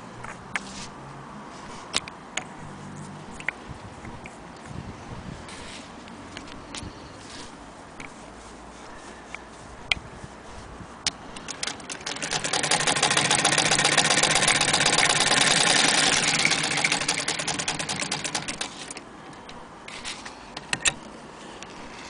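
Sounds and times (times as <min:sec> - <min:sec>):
sewing machine clicking: 0:11.4 - 0:19.0.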